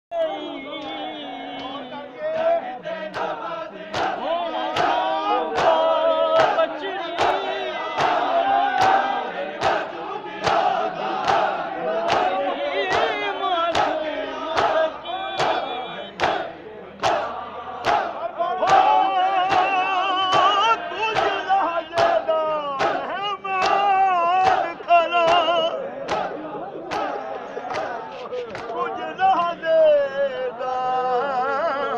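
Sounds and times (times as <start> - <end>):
men chanting together: 0.2 - 31.9
chest-beating slaps in unison: 3.1 - 5.8, 6.4 - 7.4, 8.0 - 21.4, 22.8 - 28.8.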